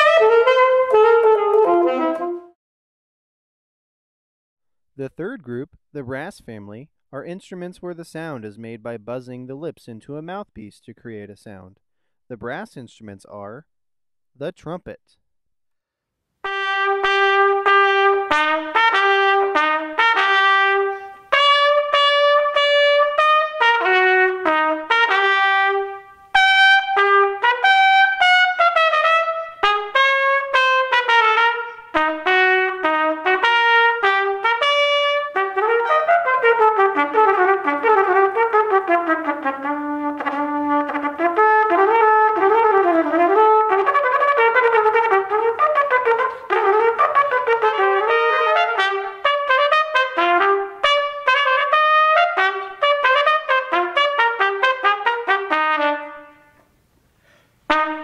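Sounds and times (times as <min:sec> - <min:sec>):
solo trumpet: 0:00.0 - 0:02.6, 0:16.4 - 0:56.8, 0:57.6 - 0:58.0.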